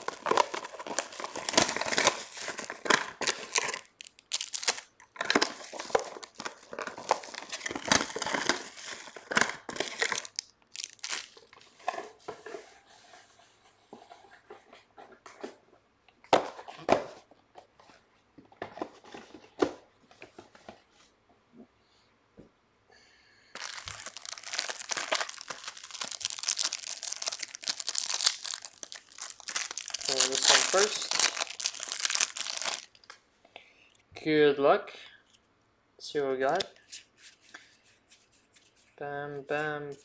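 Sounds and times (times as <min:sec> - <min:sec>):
plastic wrapping tearing and crinkling: 0:00.0 - 0:11.7, 0:23.6 - 0:33.1.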